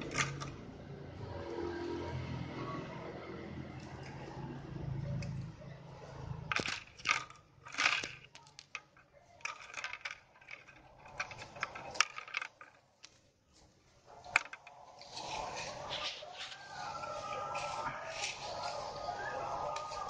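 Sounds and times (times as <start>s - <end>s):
dry sticks rustling and clicking: 0.0s - 0.6s, 3.7s - 5.5s, 6.5s - 20.0s.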